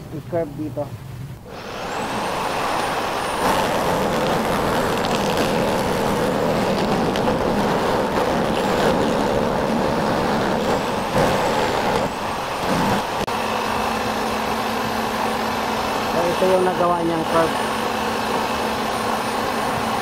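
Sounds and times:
jigsaw cutting acrylic: 0:01.6 - 0:13.0.

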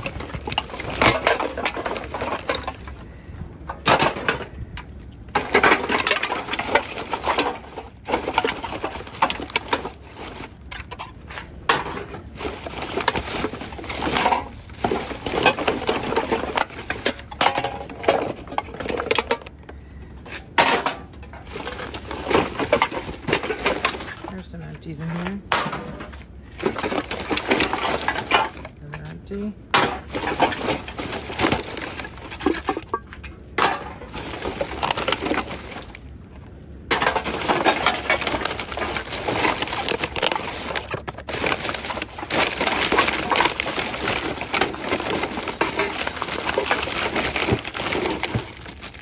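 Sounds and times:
plastic bags crinkling: 0:00.0 - 0:03.2, 0:05.3 - 0:11.1, 0:12.2 - 0:19.5, 0:21.4 - 0:24.9, 0:26.0 - 0:29.2, 0:30.0 - 0:36.4, 0:37.0 - 0:49.0
items clattering: 0:00.0 - 0:49.0.

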